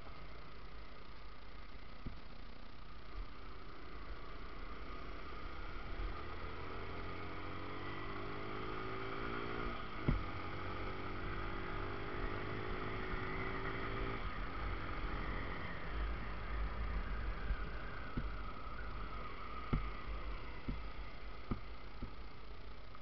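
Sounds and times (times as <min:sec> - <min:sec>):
motorcycle engine accelerating: 0:03.0 - 0:23.0
gear shift click: 0:10.0 - 0:10.3.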